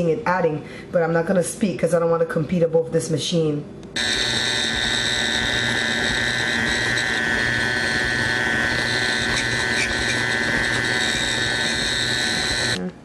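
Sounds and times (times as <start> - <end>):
stand mixer motor whine: 4.0 - 12.8.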